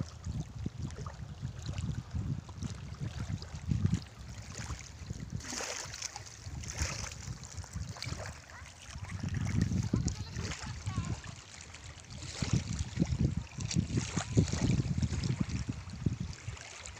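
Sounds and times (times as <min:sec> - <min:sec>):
river water lapping: 0:00.0 - 0:16.9
wind buffeting microphone: 0:00.0 - 0:16.9.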